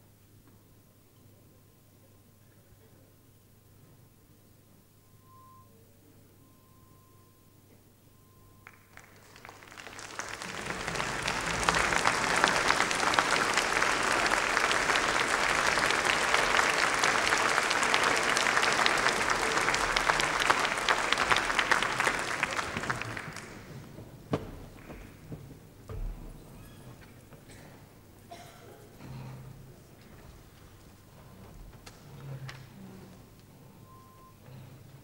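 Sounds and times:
audience applause: 0:08.6 - 0:24.0.

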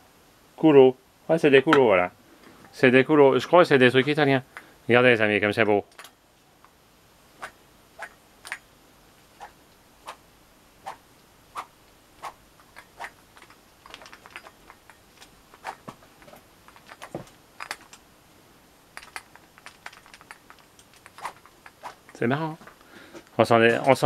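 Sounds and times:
fencing foil clicking and tapping: 0:12.6 - 0:18.1, 0:19.0 - 0:22.3.

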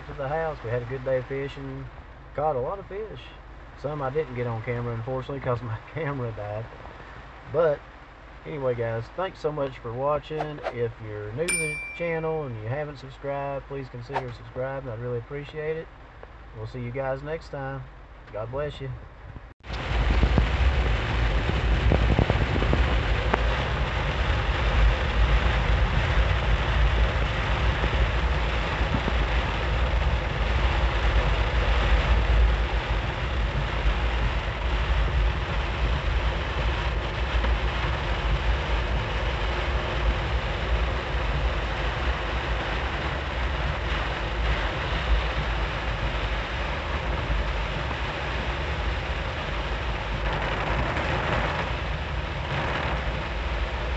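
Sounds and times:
engine and road noise: 0:00.0 - 0:53.9
heavy rain on car roof: 0:19.6 - 0:53.9.

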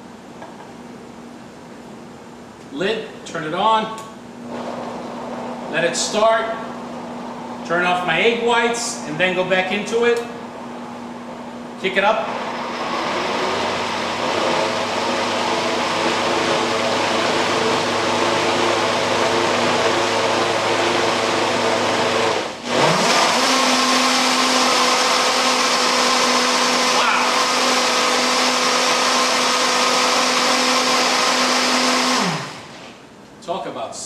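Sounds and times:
blender running at high speed: 0:04.4 - 0:05.7, 0:12.1 - 0:32.8.

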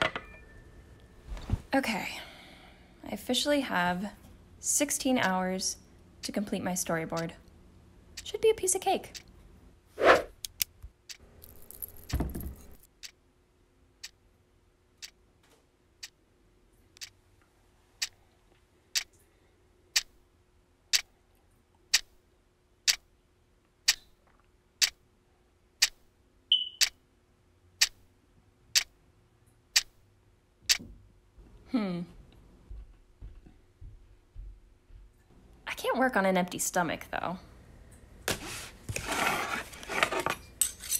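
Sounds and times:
rustle and thump: 0:11.5 - 0:12.9
clock ticking: 0:17.0 - 0:17.2
brief high chirp: 0:26.5 - 0:26.9.

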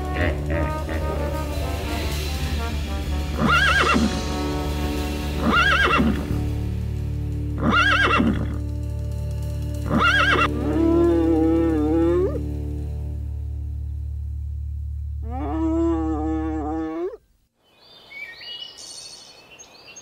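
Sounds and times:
background music: 0:00.0 - 0:15.9
horse-like animal neighing: 0:07.6 - 0:08.6.

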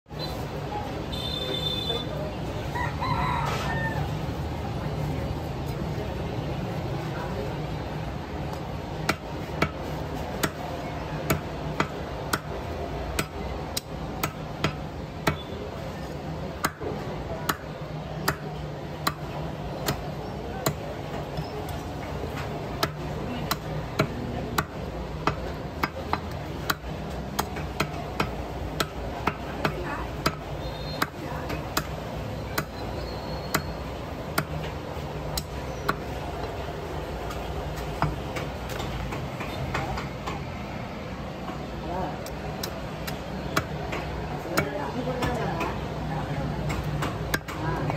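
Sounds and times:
cleaver chopping meat and bone: 0:09.0 - 0:15.6, 0:16.5 - 0:36.2, 0:42.2 - 0:45.8, 0:46.6 - 0:47.9.

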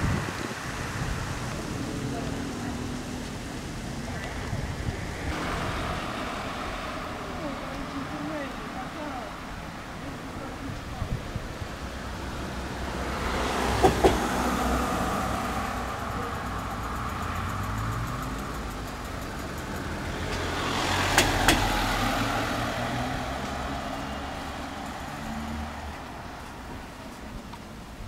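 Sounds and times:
vehicles passing by: 0:00.0 - 0:28.0
vehicle double knock: 0:13.6 - 0:14.6.

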